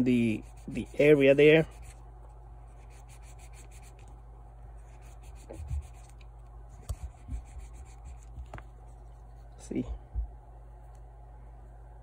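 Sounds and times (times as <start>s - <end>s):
steady low hum: 0.0s - 12.0s
faint rubbing strokes: 0.1s - 2.0s, 2.6s - 4.1s, 4.7s - 9.7s.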